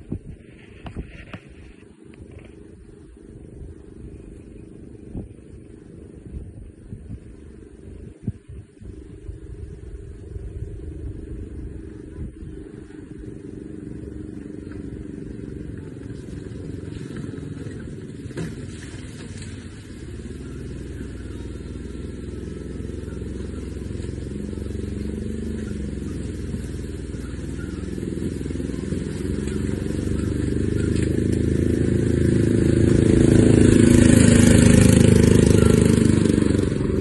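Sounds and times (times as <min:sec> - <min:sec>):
vehicle engine approaching: 0:00.0 - 0:37.0.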